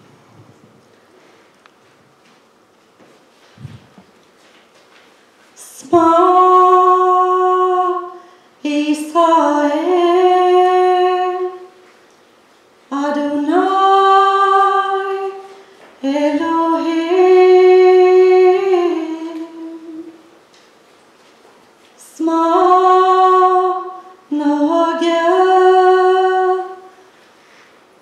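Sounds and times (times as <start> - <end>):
woman singing unaccompanied: 5.6 - 11.8, 12.9 - 20.3, 22.0 - 27.0.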